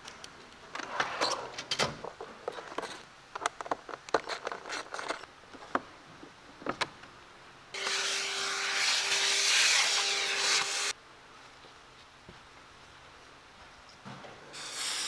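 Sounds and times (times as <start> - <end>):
vacuum hissing and humming: 14.5 - 15.0.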